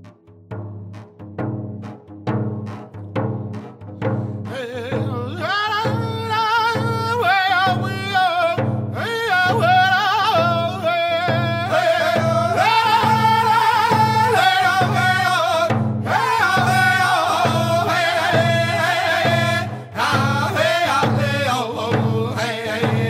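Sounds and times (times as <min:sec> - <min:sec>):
hand drum beating steady pulse: 0:00.0 - 0:23.0
singers in high wavering voices: 0:09.1 - 0:23.0.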